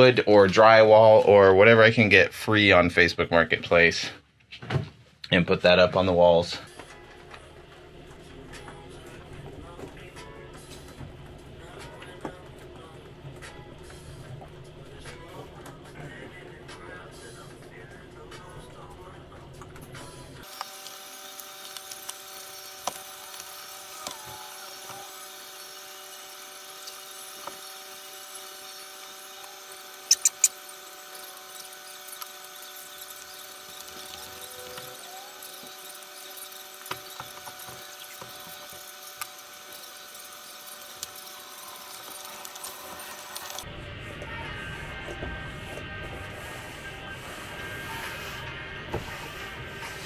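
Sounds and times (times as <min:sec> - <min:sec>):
electric hum: 0:20.4 - 0:50.0
sharp clicks: 0:30.1 - 0:30.6.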